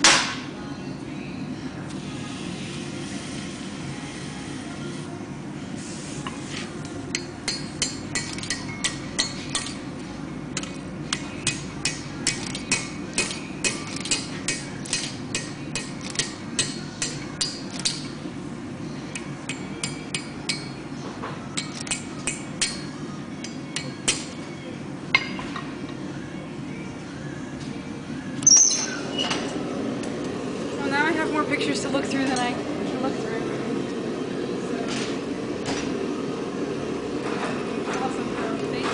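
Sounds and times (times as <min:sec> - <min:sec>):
hammer striking steel on anvil: 0:07.1 - 0:09.8, 0:10.6 - 0:18.1, 0:19.5 - 0:20.8, 0:21.6 - 0:24.4.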